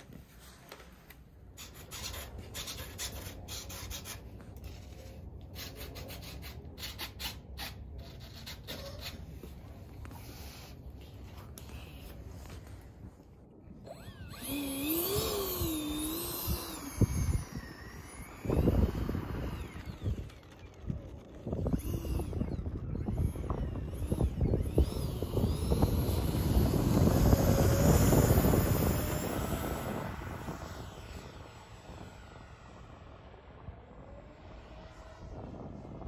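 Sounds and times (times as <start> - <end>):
electric ducted fan whine: 0.0 - 36.0.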